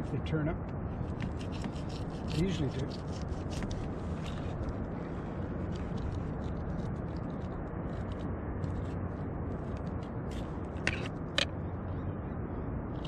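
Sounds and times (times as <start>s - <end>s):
knife scraping fish: 1.1s - 4.7s.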